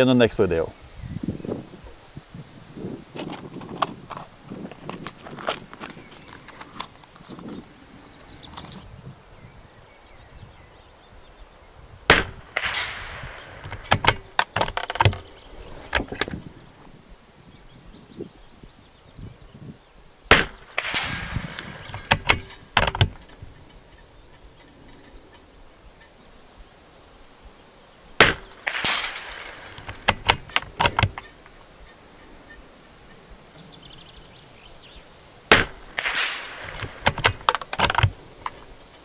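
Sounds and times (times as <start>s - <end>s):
rifle shots: 12.1s - 15.2s, 20.3s - 23.2s, 28.2s - 31.2s, 35.5s - 38.0s
bullet striking steel target: 12.1s - 15.3s, 20.3s - 23.2s, 28.2s - 31.2s, 35.5s - 37.5s.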